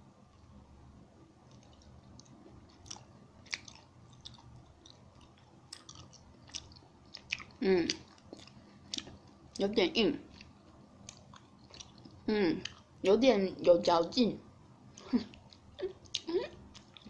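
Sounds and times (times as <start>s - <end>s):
soft wet chewing: 1.4s - 13.0s, 14.9s - 17.0s.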